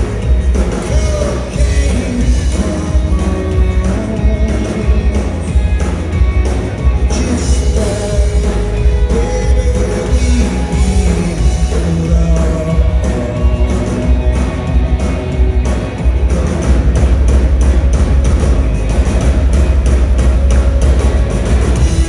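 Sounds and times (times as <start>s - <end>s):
live rock band: 0.0s - 22.0s
man singing lead vocal: 0.6s - 5.9s, 7.0s - 14.4s.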